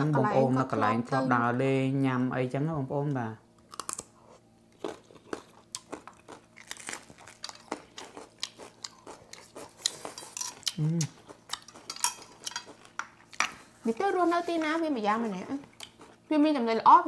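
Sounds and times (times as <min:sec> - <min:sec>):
crunching raw vegetables: 0:03.7 - 0:13.4
person humming: 0:10.7 - 0:11.2.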